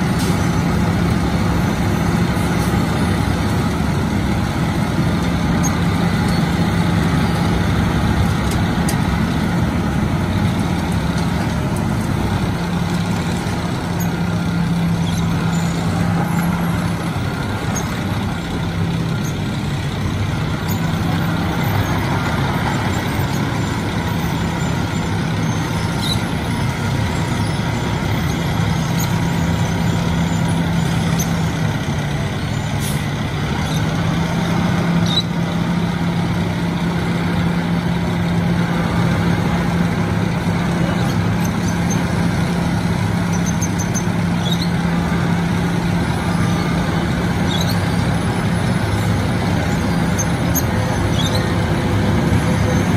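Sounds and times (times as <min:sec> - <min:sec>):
cutting drum grinding asphalt: 0:00.0 - 0:52.9
diesel engine under load: 0:00.0 - 0:52.9.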